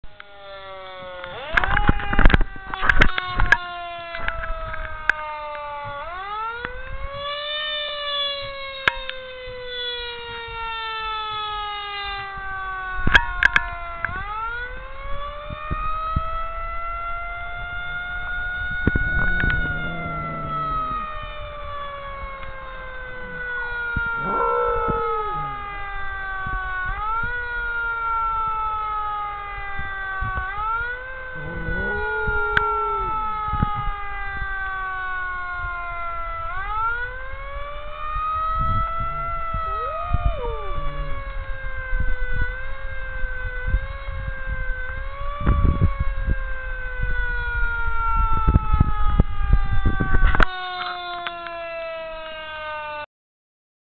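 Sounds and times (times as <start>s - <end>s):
siren wailing: 0.2s - 53.0s
dog howling: 18.8s - 26.4s, 31.1s - 34.0s, 38.6s - 41.7s.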